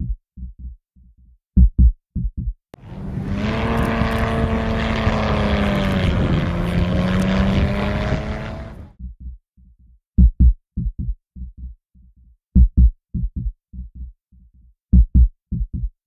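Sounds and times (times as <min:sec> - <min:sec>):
loud engine passing by: 0:02.8 - 0:09.0.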